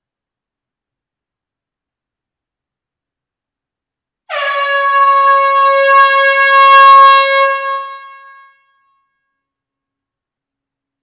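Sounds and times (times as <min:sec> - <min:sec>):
air horn blast: 0:04.3 - 0:08.8.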